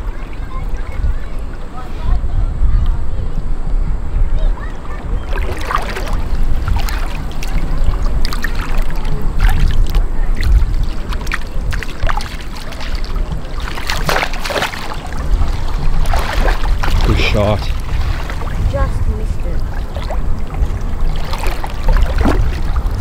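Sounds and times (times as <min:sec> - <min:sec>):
wind rumbling on microphone: 0:00.0 - 0:23.0
sea water sloshing and splashing: 0:04.8 - 0:23.0.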